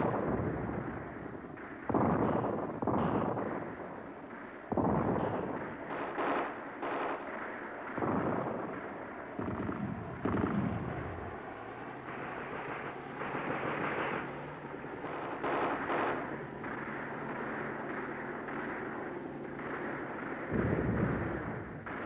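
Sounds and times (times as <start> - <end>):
explosions: 0.0 - 4.0, 4.7 - 7.2, 7.9 - 11.4, 15.0 - 22.0
gunfire: 0.0 - 22.0
steady low drone: 0.0 - 22.0.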